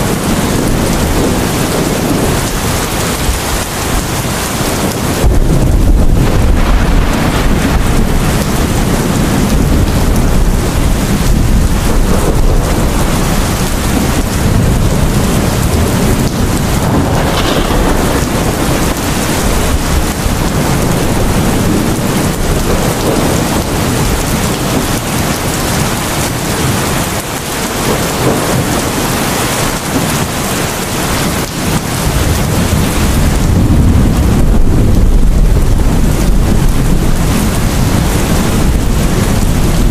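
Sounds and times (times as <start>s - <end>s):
heavy rain pouring: 0.0s - 39.9s
thunder rumbling: 0.0s - 39.9s.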